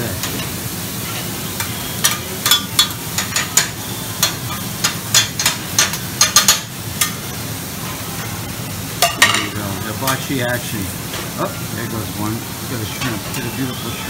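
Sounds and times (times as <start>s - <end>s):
food sizzling on griddle: 0.0s - 14.0s
metal spatulas clacking on griddle: 2.0s - 7.2s, 9.0s - 9.5s.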